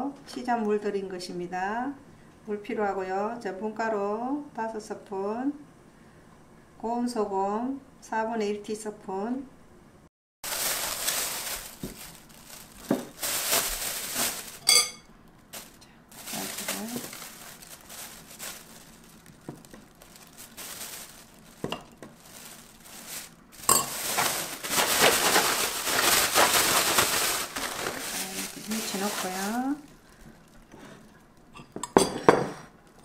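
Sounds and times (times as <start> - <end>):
bag shaken rustling: 10.4 - 14.7, 15.6 - 30.5
plastic bag crinkling: 10.4 - 31.5
spoon clinking on glass bowl: 14.6 - 15.1.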